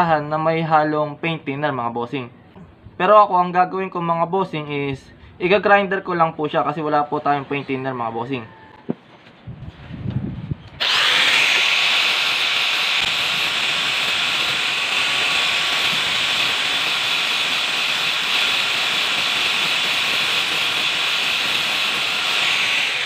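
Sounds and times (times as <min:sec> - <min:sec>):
angle grinder grinding steel: 0:10.7 - 0:23.0.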